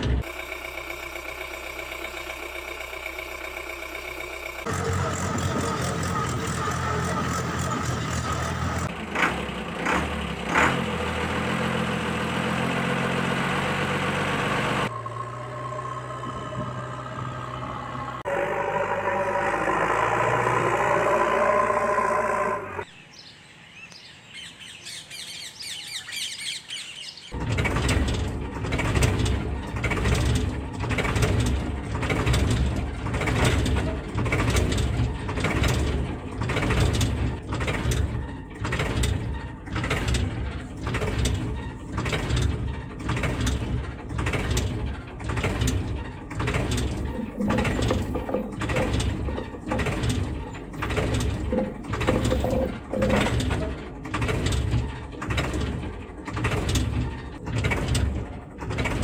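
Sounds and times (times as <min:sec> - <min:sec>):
rhythmic mechanical chugging: 0:00.0 - 0:10.5, 0:27.3 - 0:59.0
engine running: 0:00.0 - 0:23.0, 0:27.3 - 0:59.0
birds chirping: 0:14.9 - 0:27.4.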